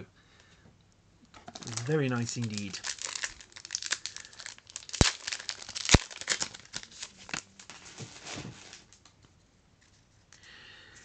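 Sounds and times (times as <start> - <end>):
foil wrapper crinkling and tearing: 1.5 - 9.2.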